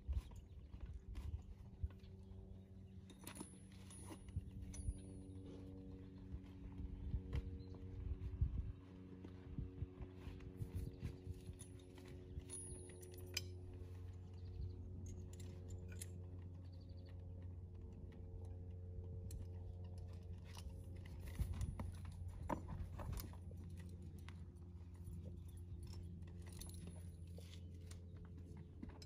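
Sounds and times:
steady low hum: 0.0s - 29.0s
metal saddle tack jangling: 0.1s - 6.2s, 10.6s - 17.0s, 18.3s - 29.0s.

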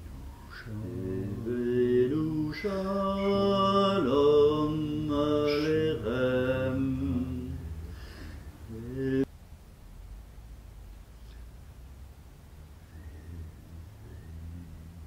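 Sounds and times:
slow chant-like singing: 0.0s - 9.3s, 12.8s - 15.0s.

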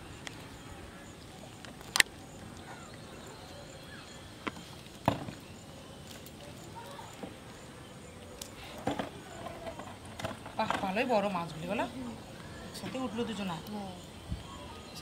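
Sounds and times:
fishing rod clicks: 1.6s - 2.1s.

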